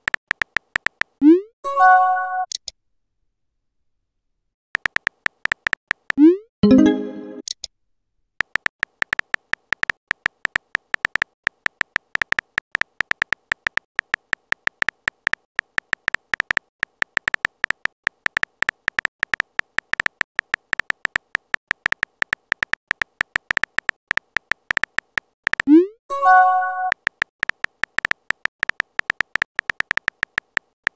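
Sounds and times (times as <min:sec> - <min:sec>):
phone keyboard typing clicks: 0:00.0 - 0:01.2, 0:04.8 - 0:06.3, 0:08.4 - 0:25.8, 0:26.7 - 0:30.9.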